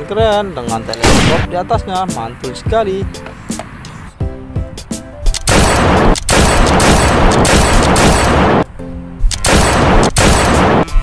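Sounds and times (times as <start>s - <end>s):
automatic gunfire: 1.0s - 1.5s, 5.5s - 8.6s, 9.4s - 10.9s.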